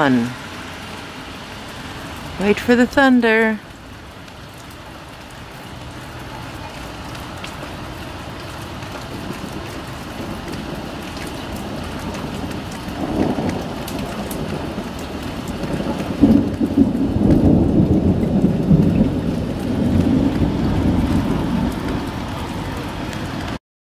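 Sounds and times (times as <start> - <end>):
steady rain: 0.0 - 23.6
thunder rumbling: 5.2 - 23.6.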